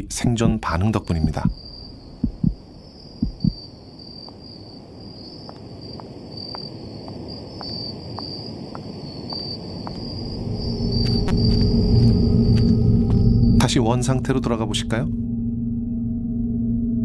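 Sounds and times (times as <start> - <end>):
crickets chirping: 0.0 - 15.1
heartbeat-like thumps: 0.2 - 2.6, 3.2 - 3.6
faint footsteps: 2.2 - 2.6, 3.2 - 3.6, 5.5 - 10.2, 10.9 - 13.3
low droning tone: 10.2 - 17.0.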